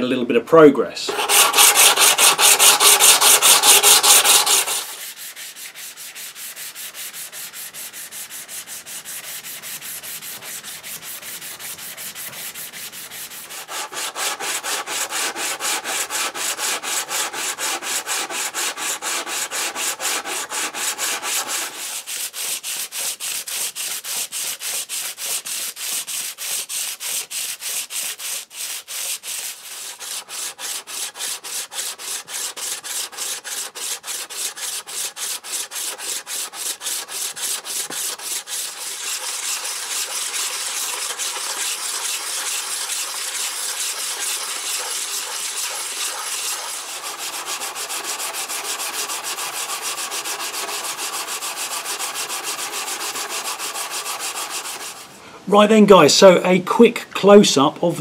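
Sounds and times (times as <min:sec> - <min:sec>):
stone scraping on sharpening plate: 0:01.1 - 0:05.0, 0:31.9 - 0:47.2.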